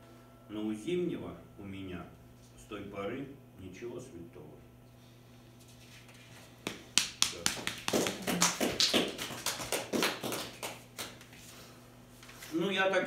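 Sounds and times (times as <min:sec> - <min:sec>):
small audience applause: 0:07.0 - 0:11.3.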